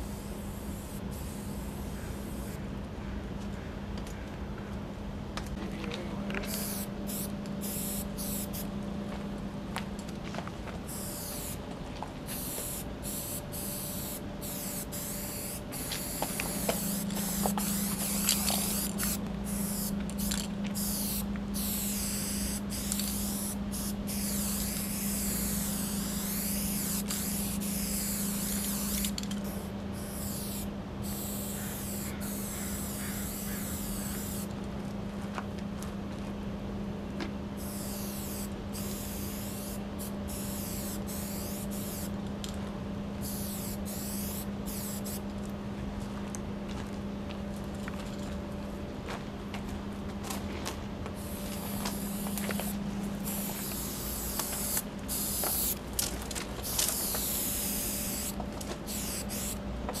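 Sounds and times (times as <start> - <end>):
spray paint can hissing: 0.0 - 2.6, 6.5 - 8.7, 10.9 - 11.6, 12.3 - 34.5, 37.6 - 42.1, 43.2 - 45.2, 51.2 - 55.8, 56.6 - 60.0
steady low hum: 0.0 - 60.0.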